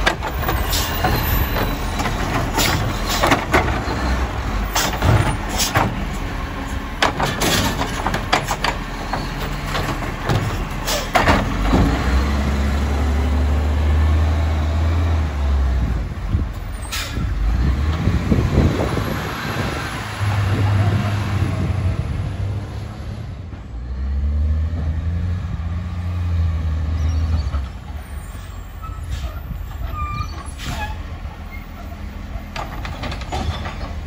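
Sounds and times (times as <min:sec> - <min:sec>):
garbage truck arm and bin clattering: 0:00.0 - 0:12.4, 0:31.7 - 0:34.0
diesel truck engine droning: 0:00.0 - 0:34.0.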